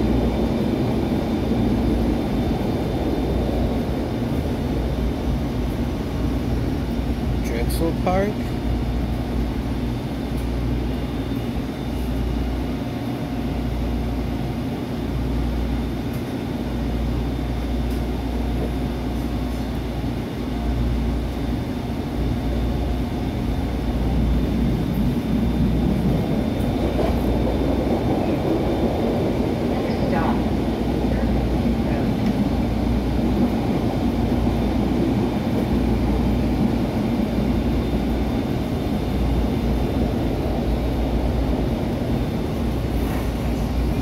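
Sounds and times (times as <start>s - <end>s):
trolley wheels and motors rumbling: 16.0s - 44.0s.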